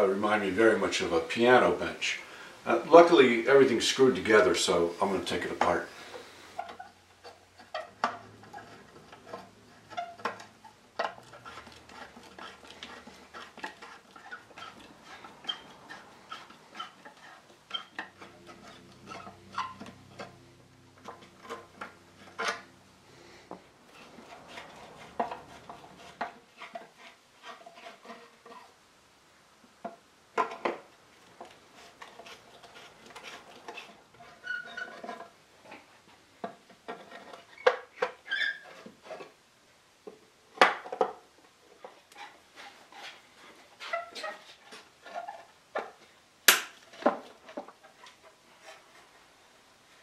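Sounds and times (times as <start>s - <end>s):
small squeaks: 6.6s - 22.7s, 31.8s - 35.9s, 36.9s - 39.3s, 41.8s - 46.0s.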